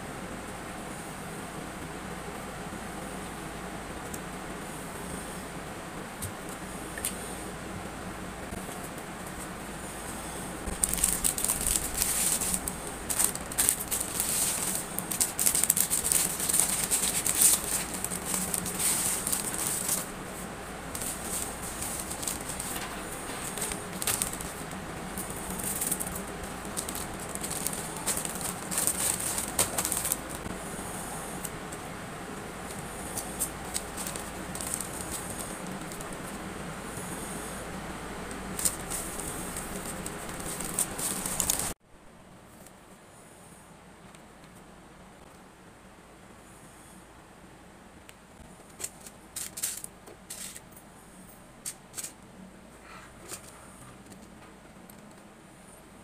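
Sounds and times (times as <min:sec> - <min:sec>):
low room hum: 0:00.0 - 0:56.0
packing materials crinkling: 0:10.6 - 0:30.6, 0:32.7 - 0:36.4, 0:38.3 - 0:41.8, 0:48.7 - 0:50.6.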